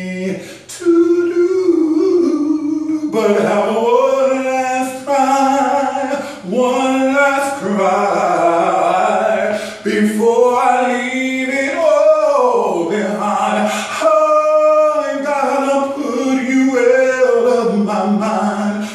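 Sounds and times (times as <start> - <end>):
man singing unaccompanied: 0.0 - 18.9
breaths between phrases: 0.4 - 0.7.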